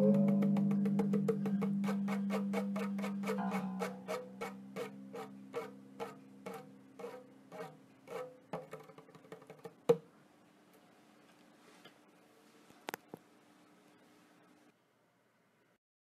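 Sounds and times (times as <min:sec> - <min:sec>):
sharp string snap: 0:00.0 - 0:06.6
low lingering tone: 0:00.0 - 0:07.5
zither plucked: 0:00.0 - 0:08.9.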